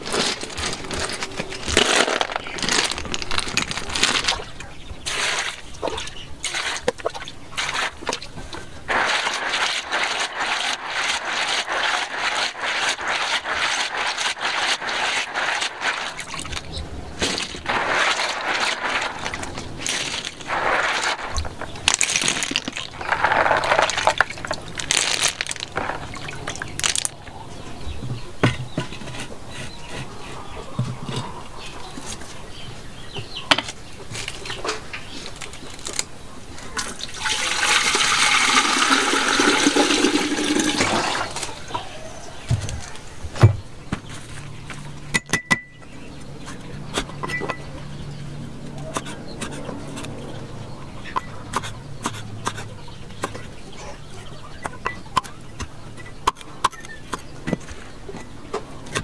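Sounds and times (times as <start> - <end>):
clatter and rustling: 0.0 - 7.0, 7.6 - 27.2
water pouring into clay pot: 8.9 - 16.6, 37.0 - 41.6.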